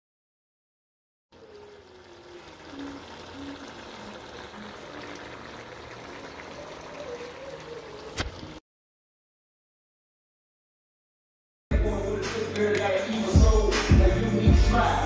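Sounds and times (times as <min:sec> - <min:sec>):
food sizzling in a pot: 0:01.4 - 0:08.6.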